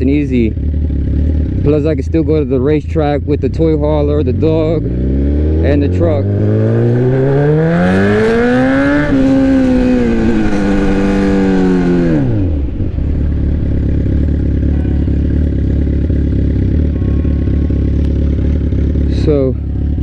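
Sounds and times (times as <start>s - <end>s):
motorcycle engine revving: 0.0s - 20.0s.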